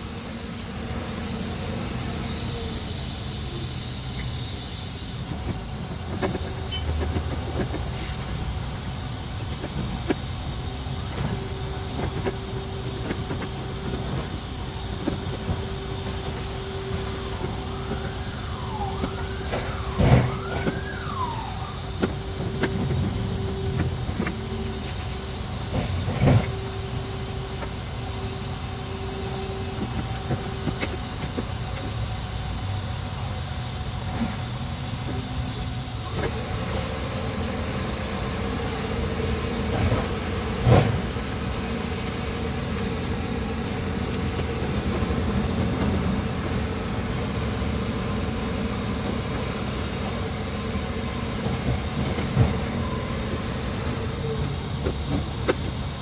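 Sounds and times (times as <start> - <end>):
shop hum: 3.6 - 34.9.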